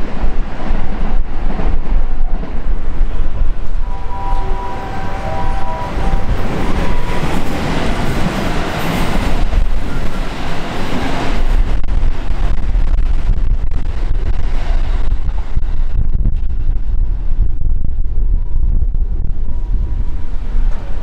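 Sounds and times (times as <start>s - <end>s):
electric train passing: 0.0s - 12.2s
wind buffeting microphone: 0.0s - 21.0s.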